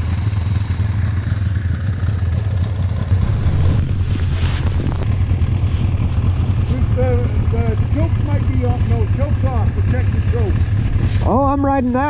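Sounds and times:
small engine idling: 0.0s - 12.0s
hiss: 3.1s - 5.0s.

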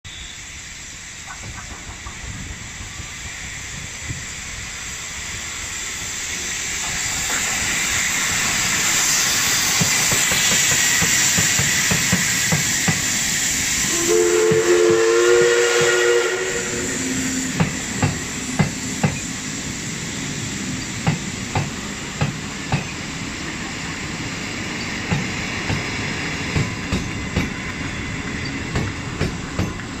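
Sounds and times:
steam locomotive hissing: 0.1s - 30.0s
two-note train whistle: 13.8s - 17.6s.

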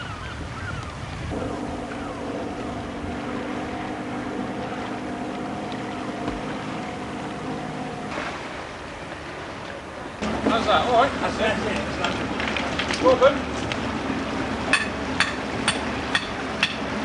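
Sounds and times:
sea water lapping: 0.0s - 17.0s
wind: 0.0s - 17.0s
boat engine running: 1.1s - 17.0s.

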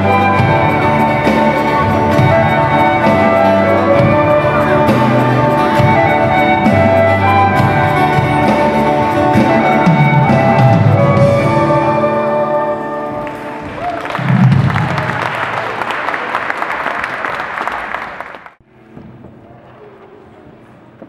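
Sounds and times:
live band playing a carol: 0.0s - 14.8s.

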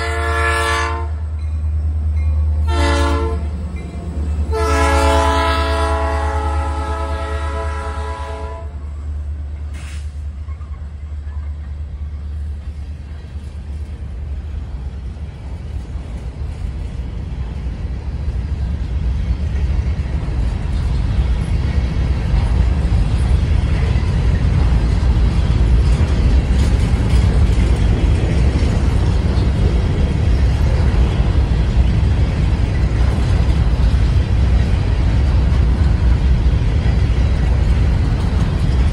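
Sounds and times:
locomotive air horn chord: 0.0s - 1.2s, 2.6s - 3.5s, 4.5s - 8.8s
train wheels rumbling on rails: 0.0s - 38.9s.

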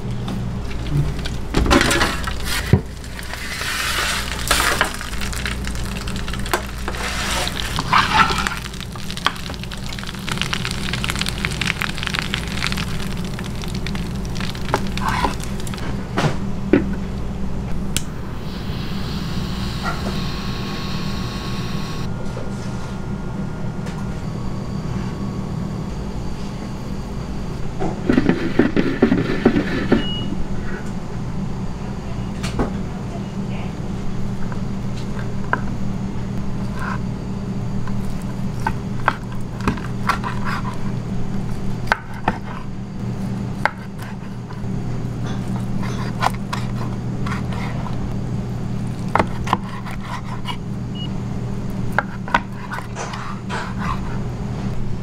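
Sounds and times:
low machine hum: 0.0s - 55.0s
kitchen clatter and scraping: 0.7s - 9.5s, 27.8s - 30.1s, 45.2s - 48.0s, 52.0s - 54.7s.

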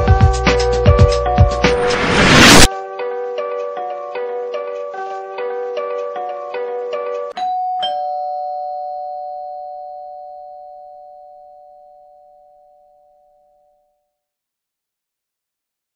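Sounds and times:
two-tone doorbell chime: 7.4s - 13.9s.

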